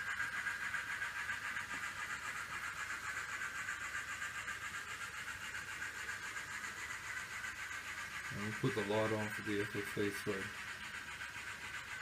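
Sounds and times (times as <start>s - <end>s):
model train motors whirring: 0.0s - 12.0s.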